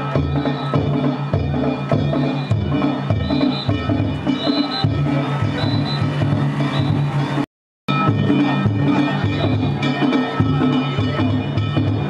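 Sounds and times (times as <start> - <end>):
drums and bells rhythm: 0.0 - 12.0
high steady tones: 2.2 - 10.3.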